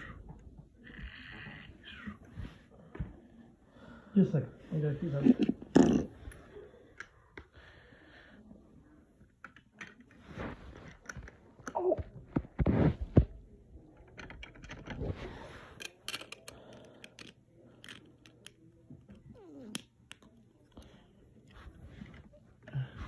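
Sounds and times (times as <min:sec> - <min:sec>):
plastic pieces clicking: 0:15.8 - 0:18.6.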